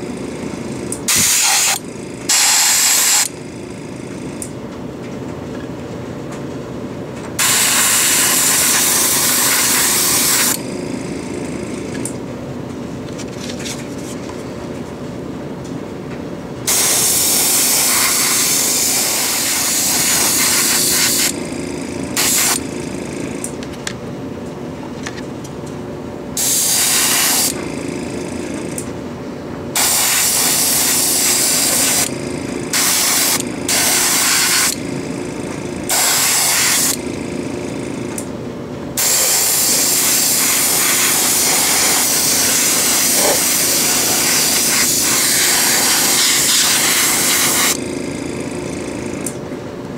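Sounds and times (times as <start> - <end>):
small compressor humming: 0.0 - 49.9
airbrush spraying hiss: 1.1 - 3.2, 7.4 - 10.5, 16.7 - 21.3, 22.2 - 22.6, 26.4 - 27.5, 29.8 - 32.1, 32.7 - 34.7, 35.9 - 36.9, 39.0 - 47.8.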